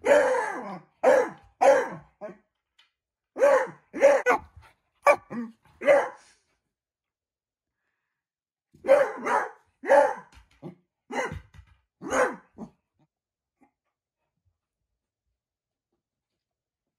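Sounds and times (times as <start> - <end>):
dog barking: 0.0 - 2.4, 3.4 - 6.3, 8.8 - 10.4, 11.1 - 12.7.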